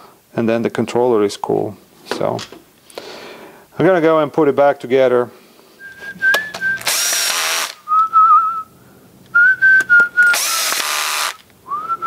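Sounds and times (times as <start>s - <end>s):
person whistling a tune: 5.8s - 6.9s, 7.8s - 8.7s, 9.4s - 10.6s, 11.7s - 12.0s
cordless drill driving screws: 6.6s - 7.8s, 10.3s - 11.5s.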